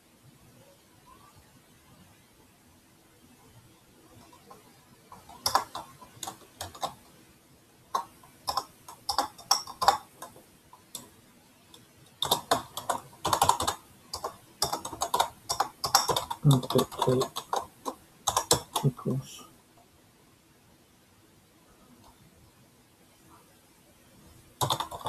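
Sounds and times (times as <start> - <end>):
keyboard typing clicks: 4.2 - 7.0, 7.9 - 11.1, 11.7 - 19.0, 24.6 - 25.0.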